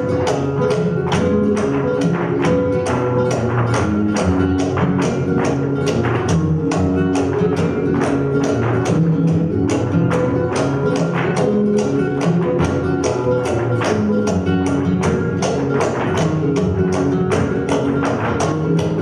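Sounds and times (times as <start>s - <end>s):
flamenco music: 0.0s - 19.0s.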